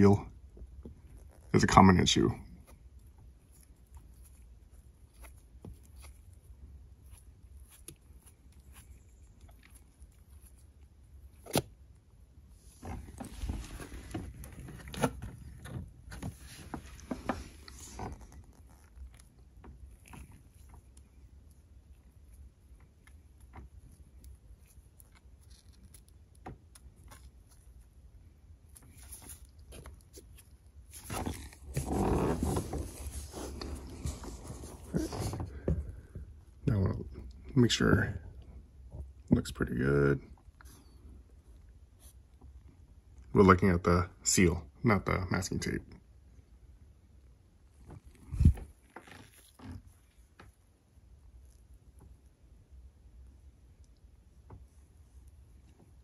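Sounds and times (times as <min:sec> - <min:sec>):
gloved hand rustling on rubber seal: 0:00.6 - 0:36.4, 0:47.8 - 0:52.2.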